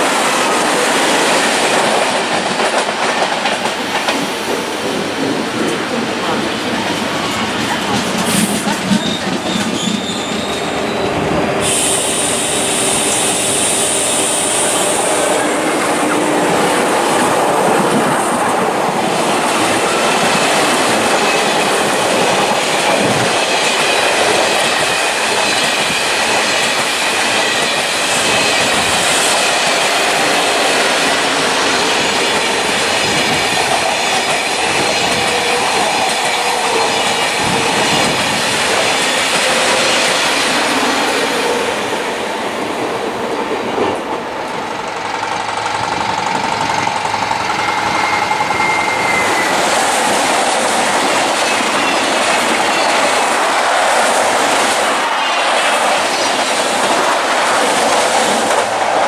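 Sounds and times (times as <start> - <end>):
train wheels rolling on rail: 0.0 - 59.0
high hiss: 11.6 - 16.1.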